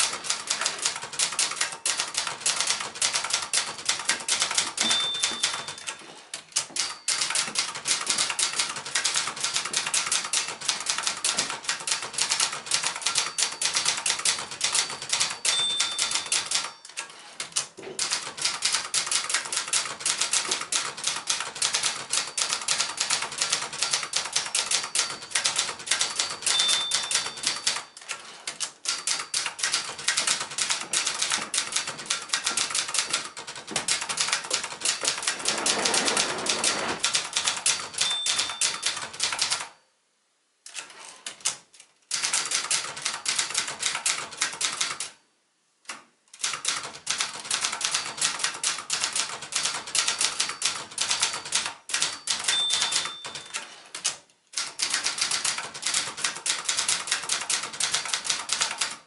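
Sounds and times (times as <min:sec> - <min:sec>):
typewriter margin bell ding: 0:00.0 - 0:17.3, 0:19.6 - 0:30.4, 0:31.0 - 0:39.8, 0:47.7 - 0:54.0
typewriter carriage return: 0:00.0 - 0:39.8, 0:46.4 - 0:59.0
typewriter keys clacking: 0:00.0 - 0:39.8, 0:40.7 - 0:45.2, 0:45.9 - 0:59.0.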